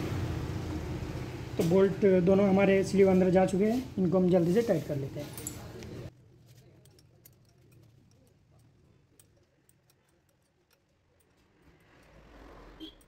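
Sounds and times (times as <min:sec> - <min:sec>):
faint metallic ticks of bolts: 0:06.6 - 0:13.0.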